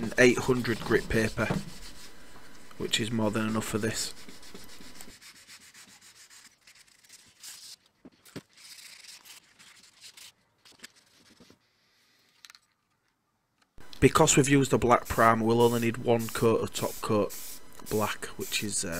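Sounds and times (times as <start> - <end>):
sandpaper rubbing on steel: 0.1 - 7.7.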